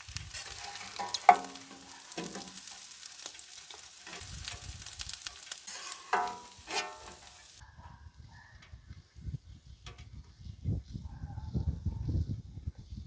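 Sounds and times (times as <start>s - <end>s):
food sizzling on a griddle: 0.0s - 7.6s
metal spatula scraping steel: 0.3s - 7.6s.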